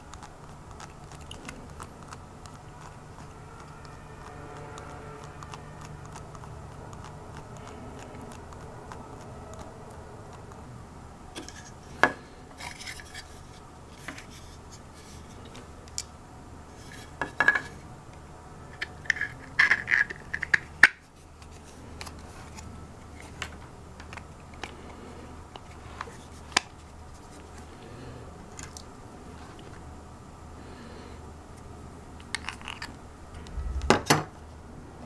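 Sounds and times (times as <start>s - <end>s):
plastic parts clicking and scraping: 18.8s - 24.8s.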